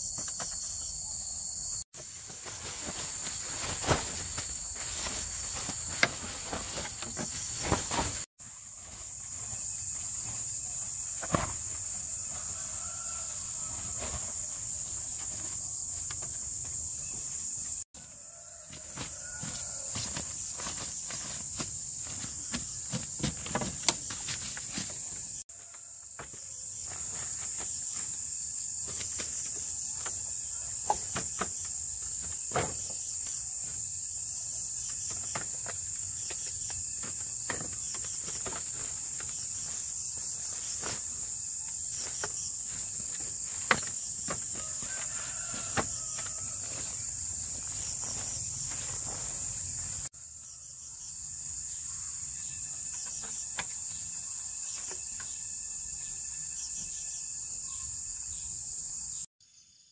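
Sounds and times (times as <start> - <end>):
forest insects chorus: 0.0 - 59.9
handwork knocks and rustles: 18.8 - 25.2.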